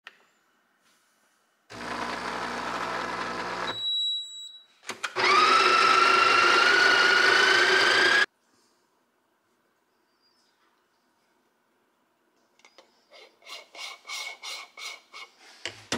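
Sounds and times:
grinder whine: 1.7s - 3.9s, 5.1s - 8.3s.

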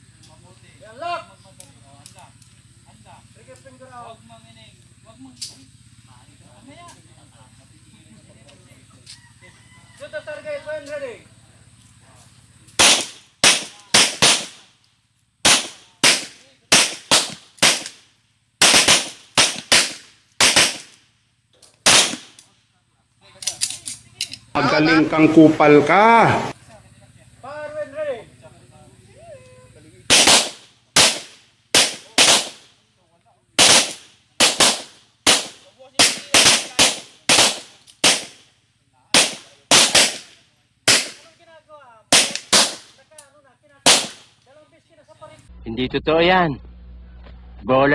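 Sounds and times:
pistol shots echoing: 12.8s - 14.6s, 15.4s - 18.0s, 18.6s - 21.0s, 21.8s - 22.4s, 30.1s - 32.7s, 33.6s - 38.4s, 39.1s - 41.3s, 42.1s - 42.9s, 43.8s - 44.3s.

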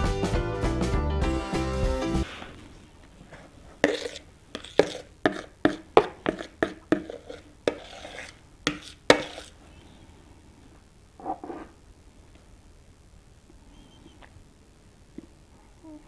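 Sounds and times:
spatula scraping plastic bowl: 3.3s - 9.6s.

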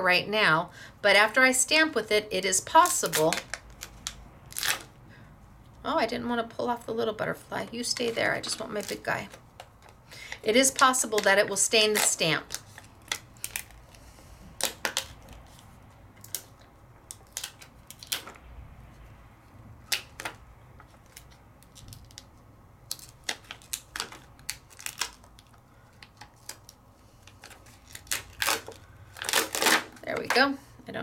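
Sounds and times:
rubbery stamp peeled from plastic: 2.8s - 5.0s, 7.9s - 14.0s, 14.6s - 18.5s, 19.8s - 30.4s.

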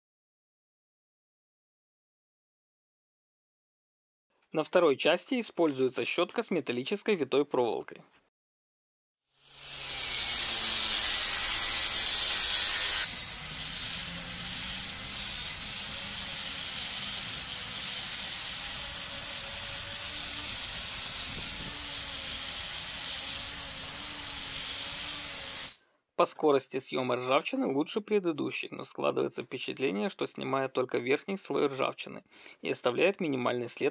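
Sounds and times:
grinder motor whine: 9.4s - 25.8s
wire brush scouring metal: 9.6s - 25.8s.

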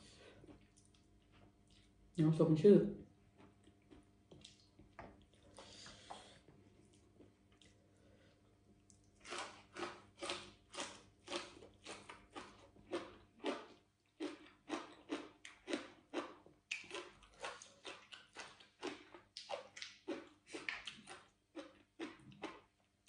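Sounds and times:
person chewing crunchy greens: 3.3s - 6.3s, 8.8s - 22.9s.

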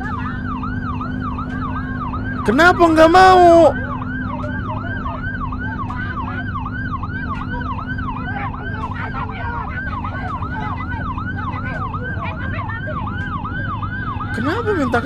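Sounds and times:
ambulance siren yelping: 0.0s - 15.0s
low rumble of idling engines: 0.0s - 15.0s.

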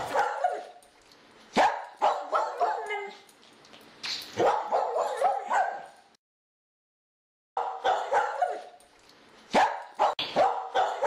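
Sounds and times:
dog barking: 0.0s - 0.8s, 1.5s - 3.2s, 4.4s - 6.0s, 7.6s - 8.8s, 9.5s - 11.0s.

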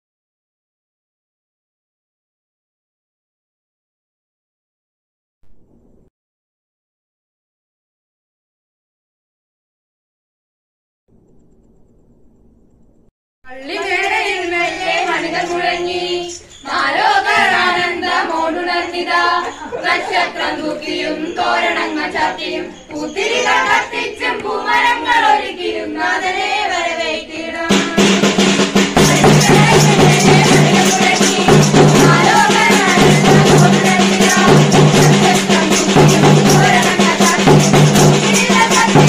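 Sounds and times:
person singing a carol: 13.5s - 39.0s
carol song with drums and bass: 13.9s - 25.4s, 26.0s - 39.0s.

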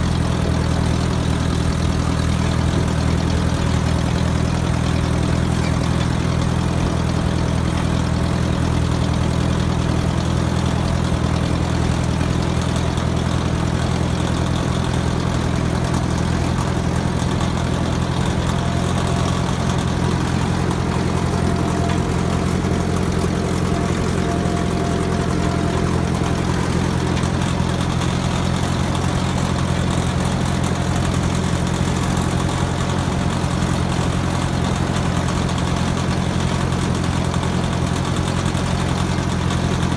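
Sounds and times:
tractor engine droning: 0.0s - 39.9s.

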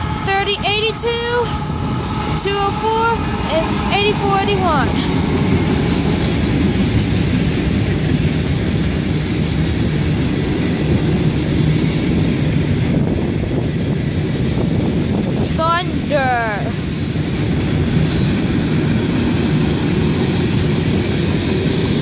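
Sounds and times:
freight train cars rumbling: 0.0s - 22.0s
train hiss: 1.3s - 7.5s.

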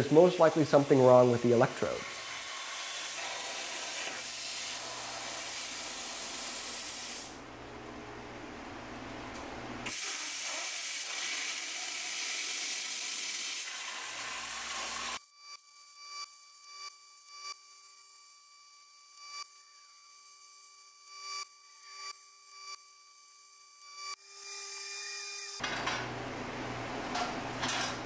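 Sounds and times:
plasma cutter torch hissing: 0.0s - 7.4s, 9.9s - 15.2s.

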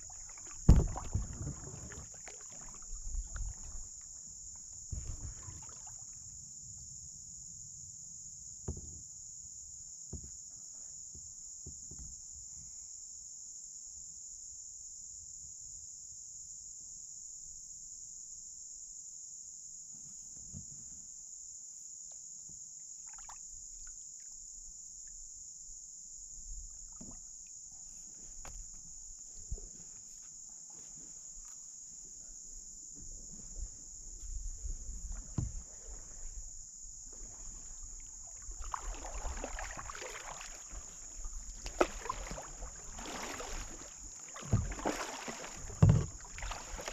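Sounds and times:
kayak paddle knocks and splashes: 0.0s - 6.2s, 22.5s - 23.9s, 26.5s - 27.6s, 32.8s - 46.9s
insect chorus drone: 0.0s - 46.9s.

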